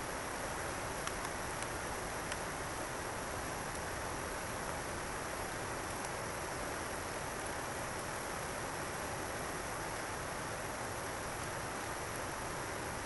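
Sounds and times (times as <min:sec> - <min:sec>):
running water hiss: 0:00.0 - 0:13.0
faint ticks: 0:00.9 - 0:02.5, 0:03.6 - 0:03.9, 0:05.8 - 0:06.2.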